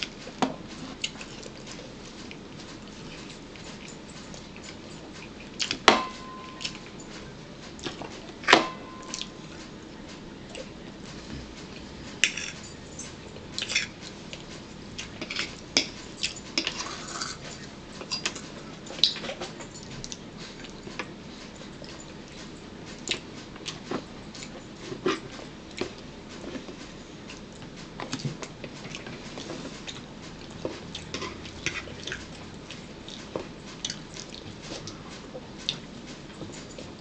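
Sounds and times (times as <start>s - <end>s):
cutlery clinking on plates: 3.2s - 7.2s, 7.8s - 9.7s, 12.2s - 14.0s, 15.2s - 20.2s.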